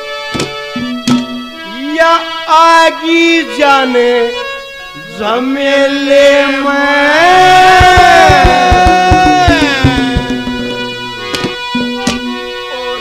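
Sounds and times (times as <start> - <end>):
instrumental accompaniment: 0.0 - 13.0
man singing into a microphone: 1.6 - 11.0
drum strokes: 7.5 - 12.0.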